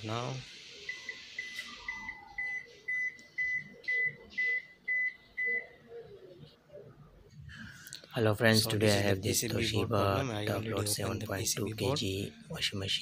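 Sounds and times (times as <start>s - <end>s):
washing machine beeping: 0.0s - 6.3s.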